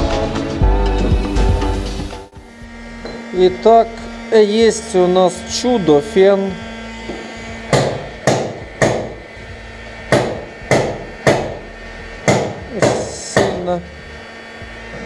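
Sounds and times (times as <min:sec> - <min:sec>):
electric heat gun humming: 0:00.2 - 0:15.0
sharp hammer-like knocks: 0:07.7 - 0:09.2, 0:10.1 - 0:11.6, 0:12.2 - 0:13.6.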